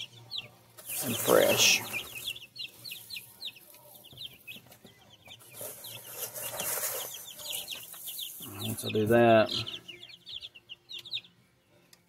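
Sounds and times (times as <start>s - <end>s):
chicks peeping: 0.0s - 12.0s
wood shavings rustling: 5.6s - 8.6s.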